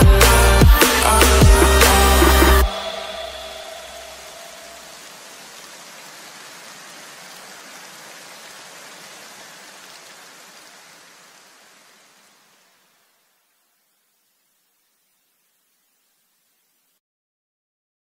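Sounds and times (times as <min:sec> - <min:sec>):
electronic dance music: 0:00.0 - 0:04.9
rain-like hiss: 0:00.0 - 0:17.0.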